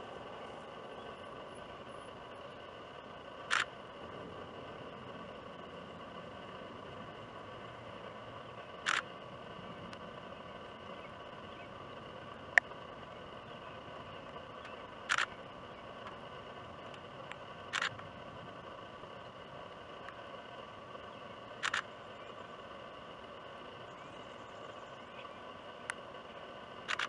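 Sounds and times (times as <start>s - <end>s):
faint outdoor background: 0.0s - 27.0s.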